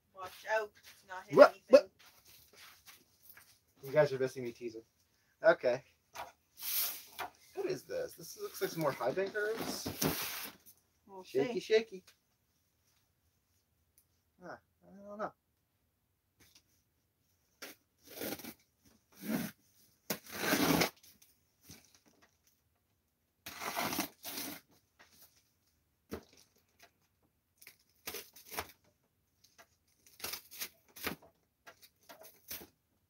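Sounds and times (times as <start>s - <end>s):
box cutter slitting tape and cardboard: 17.6s - 18.6s, 20.1s - 21.1s, 23.5s - 24.7s, 28.0s - 28.8s, 30.0s - 31.2s.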